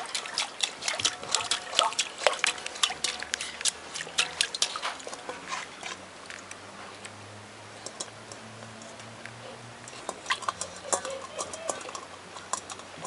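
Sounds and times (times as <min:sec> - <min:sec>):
puppy splashing water in bowl: 0:00.0 - 0:13.0.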